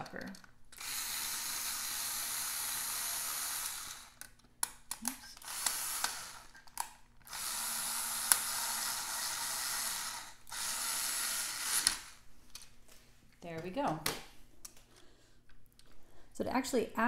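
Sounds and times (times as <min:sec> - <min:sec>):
cordless drill running: 0:00.8 - 0:04.2, 0:05.4 - 0:06.6, 0:07.3 - 0:12.2.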